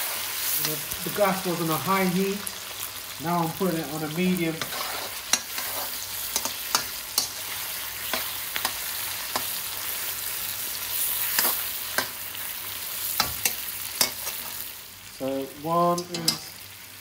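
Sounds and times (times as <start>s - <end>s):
vegetables sizzling in oil: 0.0s - 17.0s
metal spoon clicking on pan: 6.3s - 7.4s, 16.0s - 16.5s.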